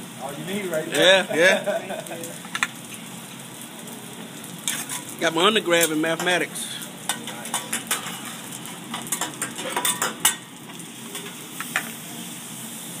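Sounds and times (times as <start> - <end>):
rice sizzling on a griddle: 0.0 - 13.0
metal spatula scraping and clacking: 4.6 - 5.1, 7.1 - 10.4.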